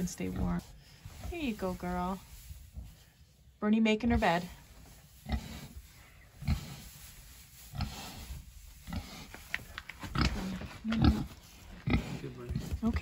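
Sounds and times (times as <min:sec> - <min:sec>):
straw rustling: 0:04.2 - 0:13.0
pig grunting: 0:10.1 - 0:12.8.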